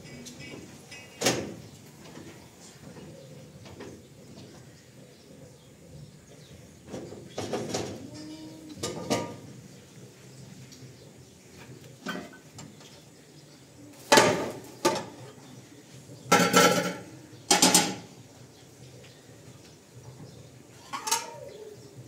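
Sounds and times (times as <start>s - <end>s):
metal pots clanking: 8.8s - 9.5s, 12.0s - 12.7s, 16.3s - 18.1s, 20.8s - 21.4s.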